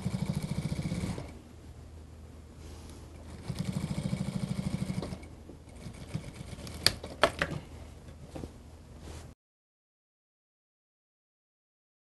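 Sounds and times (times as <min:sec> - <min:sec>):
sewing machine stitching: 0:00.0 - 0:01.4, 0:03.3 - 0:07.0.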